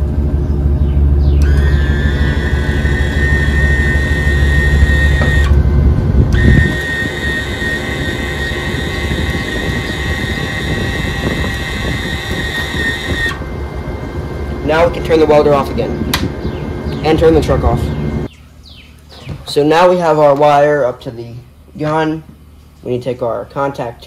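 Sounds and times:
wire feed motor whine: 0:00.0 - 0:18.3
low rumble: 0:04.8 - 0:06.5.

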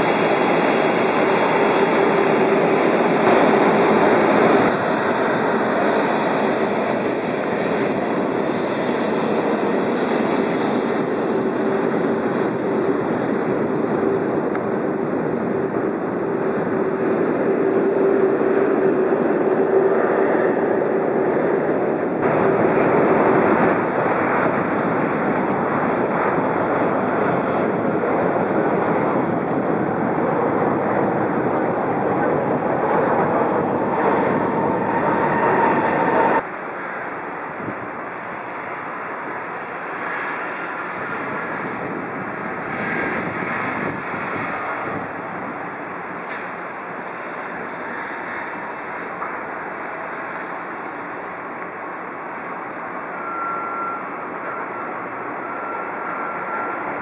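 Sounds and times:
jet engines running: 0:00.0 - 0:57.0.

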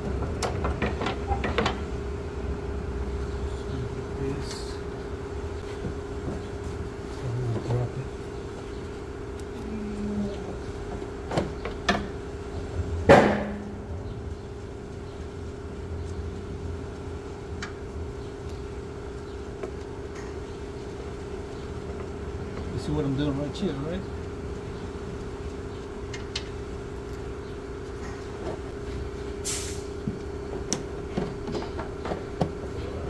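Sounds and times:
knocks and clicks in engine bay: 0:00.0 - 0:01.8, 0:30.0 - 0:32.6
steady background hum: 0:00.0 - 0:33.0.

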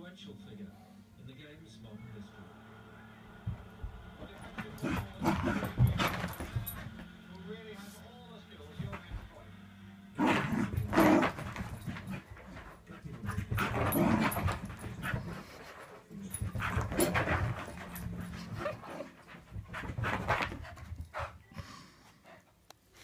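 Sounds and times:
dog panting: 0:10.5 - 0:22.6.

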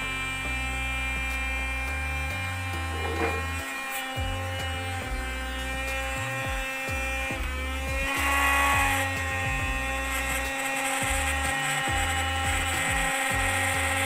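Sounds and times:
electric air pump whining: 0:00.0 - 0:14.0.

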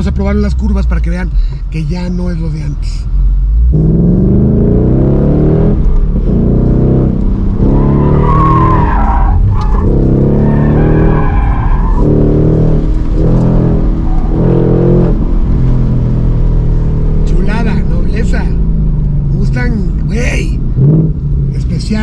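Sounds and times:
car engine revving hard: 0:03.6 - 0:19.6, 0:20.3 - 0:22.0
tyre squealing: 0:07.5 - 0:15.2.

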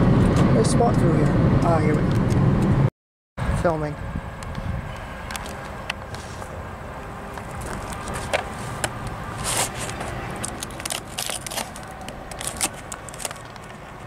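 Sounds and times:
plastic container crackling: 0:09.4 - 0:13.8.

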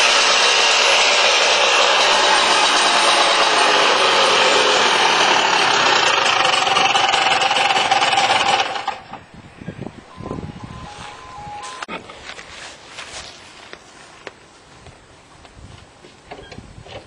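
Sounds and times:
two-stroke engine running: 0:00.0 - 0:09.3.

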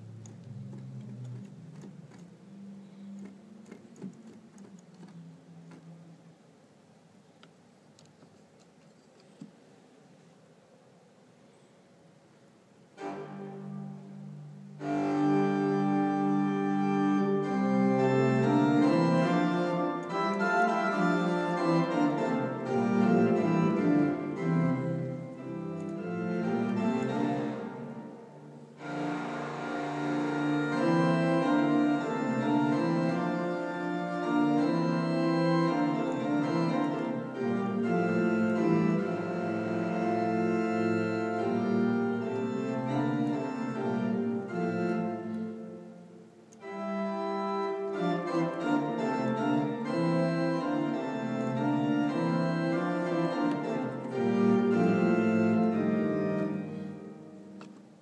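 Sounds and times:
church organ chords: 0:13.0 - 0:57.8.

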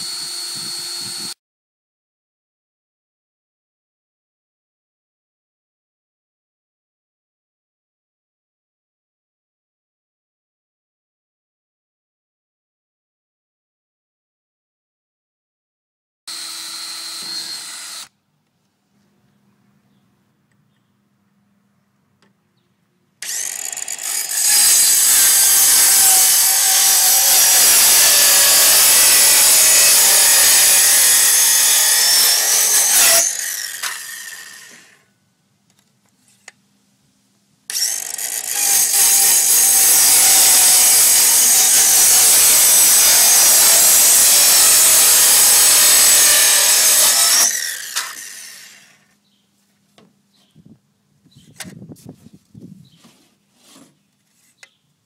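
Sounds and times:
circular saw cutting plastic pipe: 0:00.0 - 0:01.4, 0:16.3 - 0:18.2, 0:23.2 - 0:35.1, 0:37.7 - 0:49.1.

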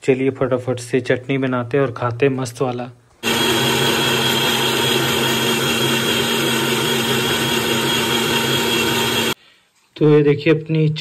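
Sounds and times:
electric mixer grinder running: 0:03.2 - 0:09.4.

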